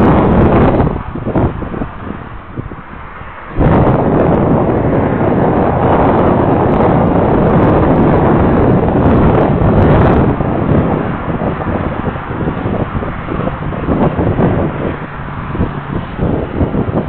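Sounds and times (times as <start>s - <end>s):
wind on microphone: 0.0s - 17.0s.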